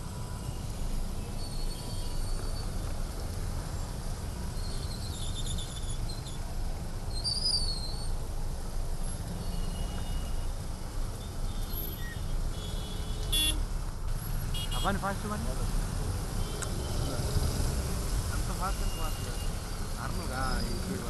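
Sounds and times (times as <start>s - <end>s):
city traffic rumble: 0.0s - 21.0s
faint high chirps and squeaks: 1.2s - 2.9s, 4.6s - 6.5s, 7.1s - 8.2s, 11.2s - 12.2s.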